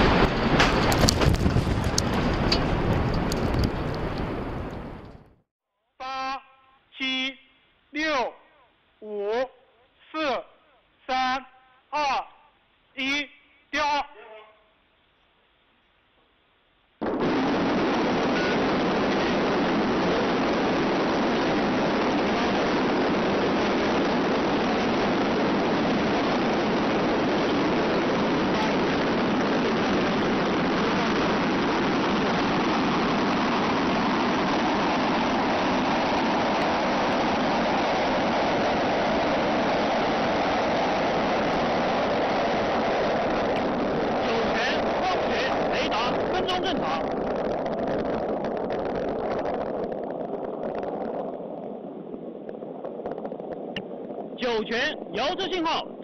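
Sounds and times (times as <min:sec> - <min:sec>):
rocket engine roar: 0:00.0 - 0:05.4, 0:17.0 - 0:56.0.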